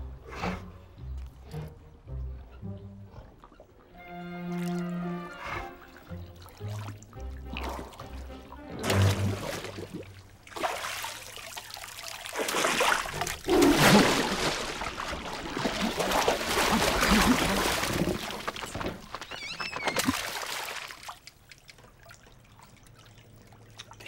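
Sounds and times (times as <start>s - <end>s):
water splashing in fish tank: 8.8s - 18.9s, 20.0s - 24.0s.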